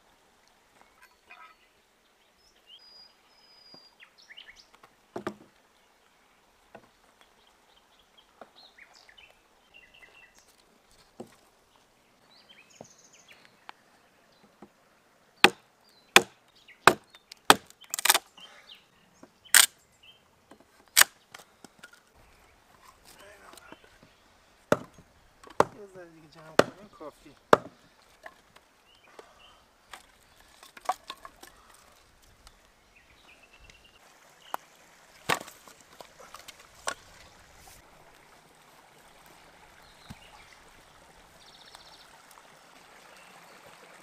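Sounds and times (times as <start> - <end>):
axe chopping wood: 5.2 - 5.5, 15.4 - 15.6, 16.2 - 18.2, 24.7 - 25.8, 26.4 - 27.8, 35.2 - 35.7
dull thump: 24.7 - 25.8.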